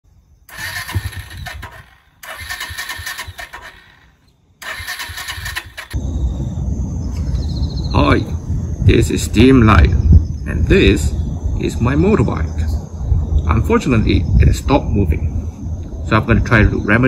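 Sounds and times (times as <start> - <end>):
engine electric starter cranking: 0.5 - 6.0
low outdoor rumble: 0.6 - 17.0.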